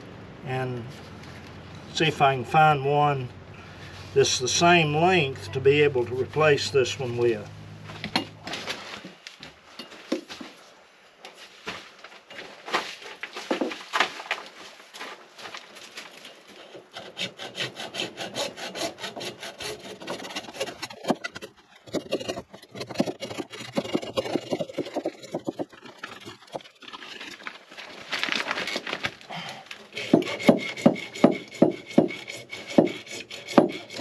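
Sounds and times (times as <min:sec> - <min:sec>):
hacksaw cutting plastic pipe: 0:16.5 - 0:27.5, 0:29.9 - 0:34.0.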